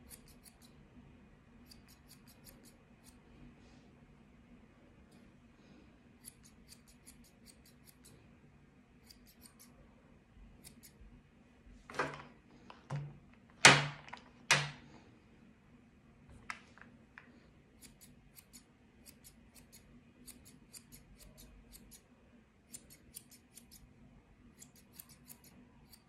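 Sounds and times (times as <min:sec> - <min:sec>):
scissors snipping hair: 0:00.0 - 0:00.8, 0:01.6 - 0:03.2, 0:06.2 - 0:08.1, 0:09.0 - 0:09.7, 0:10.6 - 0:11.0, 0:17.8 - 0:22.0, 0:22.7 - 0:23.8, 0:24.5 - 0:26.0.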